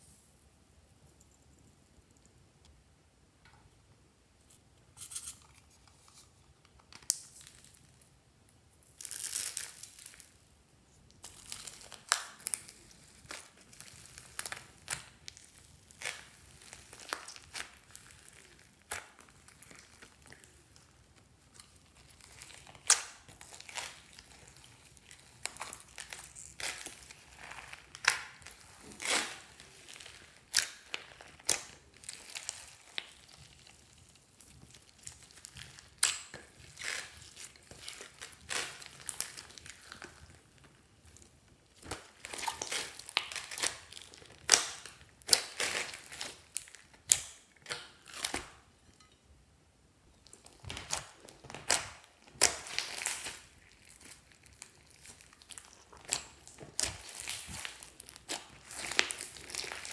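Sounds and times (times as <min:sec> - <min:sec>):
slime squishing with sticky pops: 0:11.1 - 0:49.2, 0:50.2 - 0:59.9.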